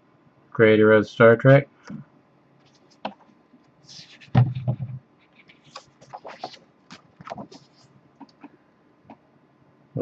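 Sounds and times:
paper and card rustling: 2.7s - 8.5s.

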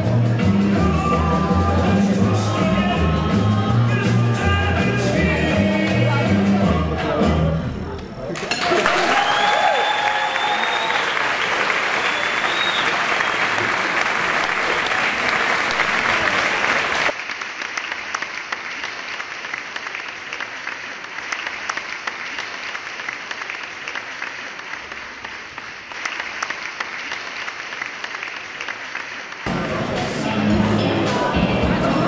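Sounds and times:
audience applauding: 8.4s - 30.4s.

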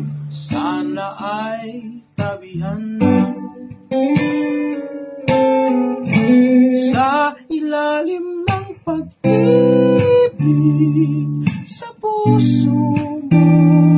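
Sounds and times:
acoustic guitar strumming: 0.0s - 13.9s
person singing long notes: 6.8s - 13.9s.

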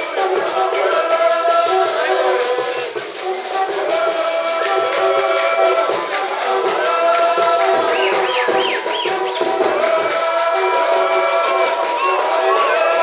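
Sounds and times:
hand percussion: 0.0s - 13.0s
voices singing together: 0.0s - 13.0s.

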